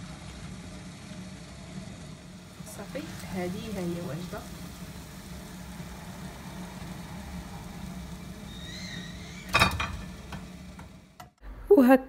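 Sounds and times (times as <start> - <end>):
steady low hum: 0.0 - 11.8.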